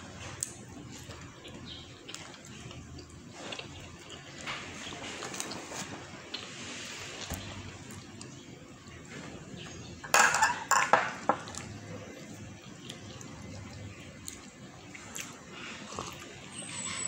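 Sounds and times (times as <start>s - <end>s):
tableware clattering: 10.0s - 11.5s.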